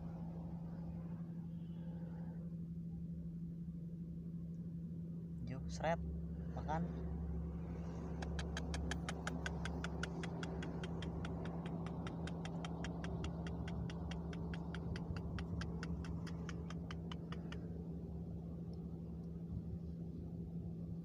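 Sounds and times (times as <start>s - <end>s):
steady low hum: 0.0s - 21.0s
rapid even ticking: 8.2s - 17.7s.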